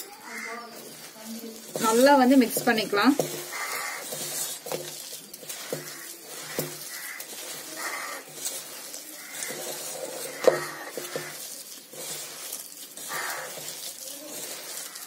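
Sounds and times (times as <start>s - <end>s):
hand squeezing batter in bowl: 0.0s - 15.0s
soft squelch: 3.2s - 15.0s.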